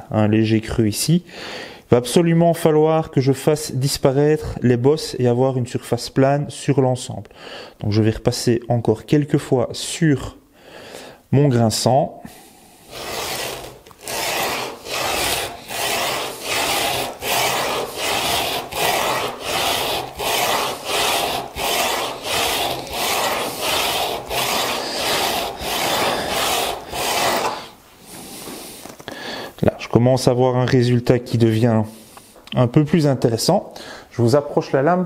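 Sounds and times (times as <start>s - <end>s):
chisel rasping on sandpaper: 12.8s - 28.5s.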